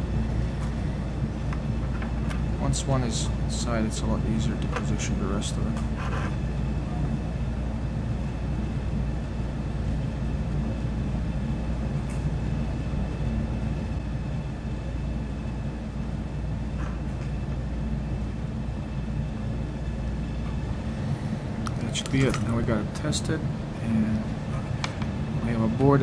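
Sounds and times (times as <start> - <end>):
machinery low rumble: 0.0 - 26.0.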